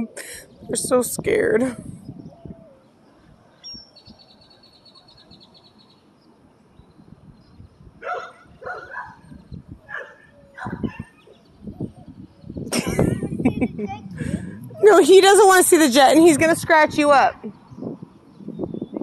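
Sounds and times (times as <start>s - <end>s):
dog barking: 8.0s - 9.2s, 9.9s - 11.1s.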